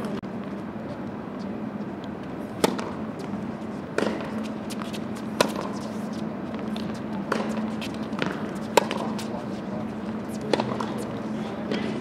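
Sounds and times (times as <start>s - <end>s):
steady low hum: 0.0s - 12.0s
tennis racket striking ball: 2.6s - 5.9s, 6.8s - 9.3s, 10.5s - 11.1s, 11.7s - 12.0s.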